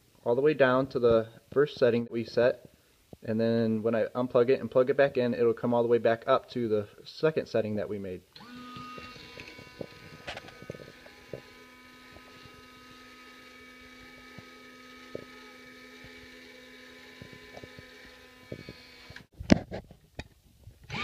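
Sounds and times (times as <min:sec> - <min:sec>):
small motor humming: 0:08.4 - 0:19.3.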